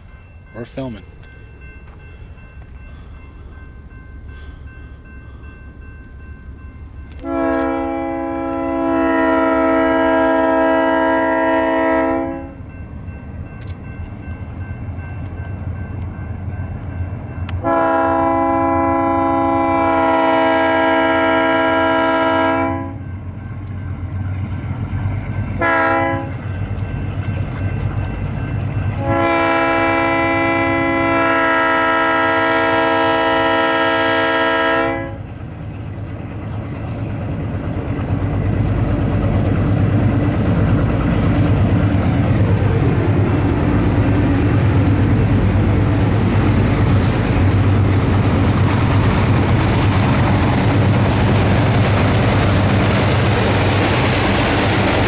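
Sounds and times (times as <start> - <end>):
locomotive air horn blasts: 7.2 - 12.6, 17.6 - 23.0, 25.6 - 26.4, 29.0 - 35.2.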